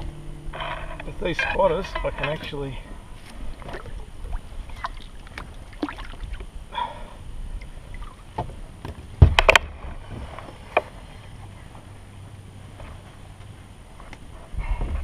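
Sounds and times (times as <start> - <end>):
low rumble: 0.0 - 12.8
knocks and clicks of gear: 8.4 - 9.7.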